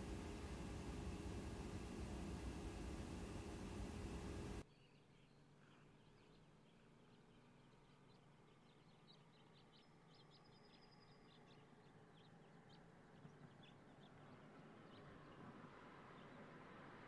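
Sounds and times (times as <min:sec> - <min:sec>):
birds chirping: 0:00.0 - 0:04.6
distant vehicle road noise: 0:00.0 - 0:04.6.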